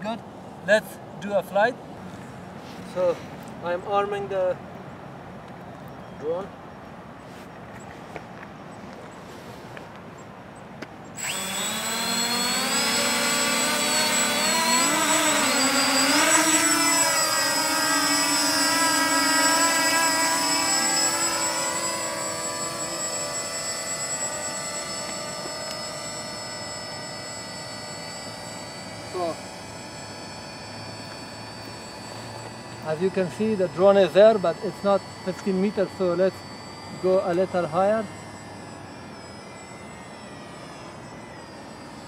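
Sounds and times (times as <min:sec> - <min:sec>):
drone propellers buzzing: 0:11.0 - 0:42.0.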